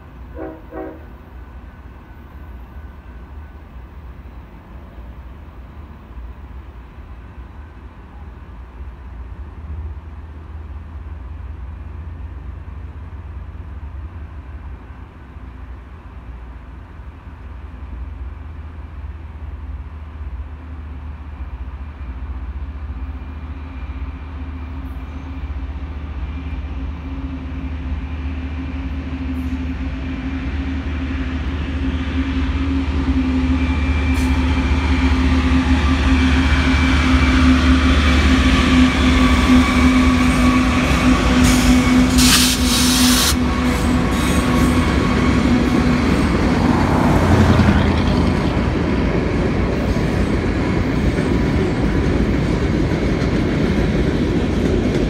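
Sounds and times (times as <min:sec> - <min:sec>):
diesel locomotives droning: 0:00.0 - 0:55.0
freight cars rolling past: 0:22.5 - 0:55.0
loud hiss: 0:41.4 - 0:44.4.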